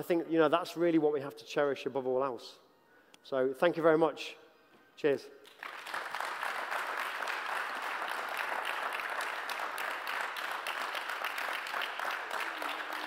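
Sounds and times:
audience applauding: 5.5 - 13.0.

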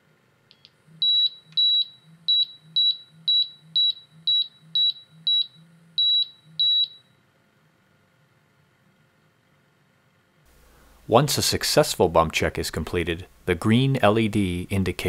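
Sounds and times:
gas detector alarm beeping: 0.5 - 7.2.

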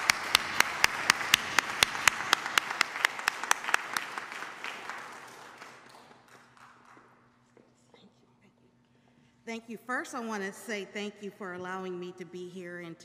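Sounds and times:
loud close hand claps: 0.0 - 7.3
congregation applauding: 0.0 - 7.4.

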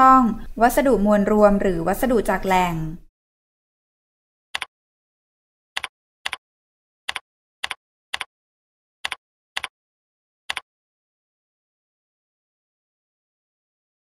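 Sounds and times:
computer keyboard keystrokes: 7.1 - 8.3, 9.0 - 9.7.

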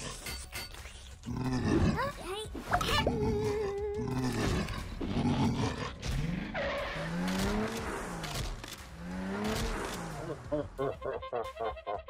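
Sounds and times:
growling revving sound: 3.0 - 8.4.

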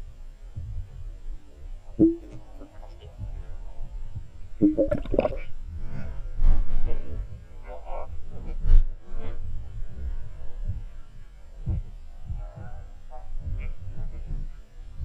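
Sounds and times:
muffled underwater rumble: 0.0 - 15.0
short pitched blips: 2.0 - 2.7, 4.6 - 5.4.

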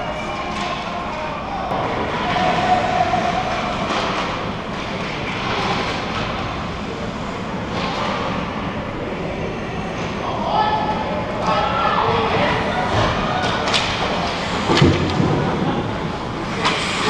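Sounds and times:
arena voices: 0.0 - 4.7, 8.3 - 17.0.

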